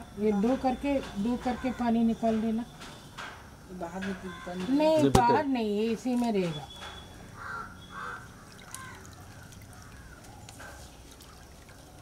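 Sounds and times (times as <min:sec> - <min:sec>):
liquid dripping and sloshing: 0:08.1 - 0:12.0.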